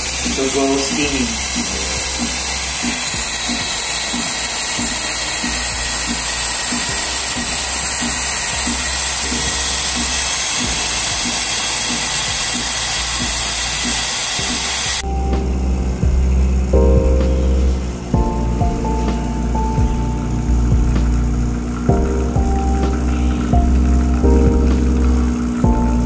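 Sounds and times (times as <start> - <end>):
espresso steam wand hissing: 0.0 - 15.0.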